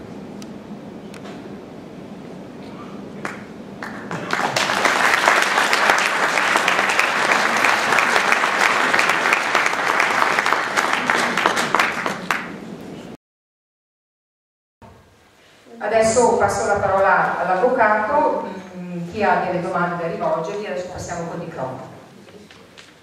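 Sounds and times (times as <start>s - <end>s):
audience applauding: 3.2s - 12.7s.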